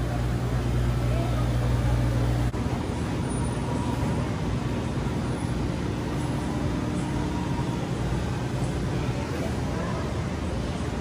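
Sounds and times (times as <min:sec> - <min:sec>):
faint steady hum: 0:00.0 - 0:11.0
low rumble and hiss: 0:00.0 - 0:11.0.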